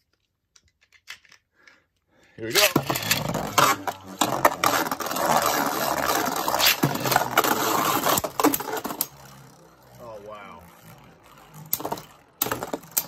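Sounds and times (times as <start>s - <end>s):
spinning tops whirring on plastic: 2.5s - 13.0s
spinning tops clacking together: 2.6s - 10.0s, 10.6s - 13.0s.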